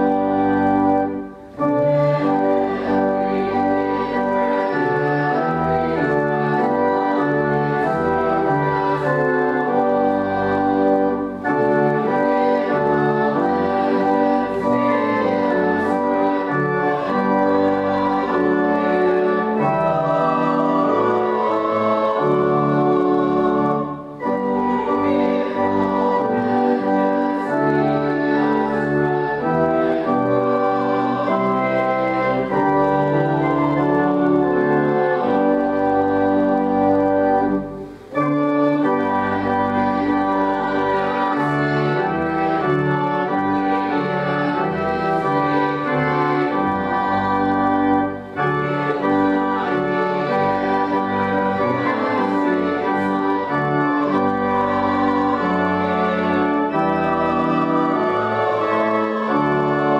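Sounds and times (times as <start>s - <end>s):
church organ playing a hymn: 0.0s - 59.9s.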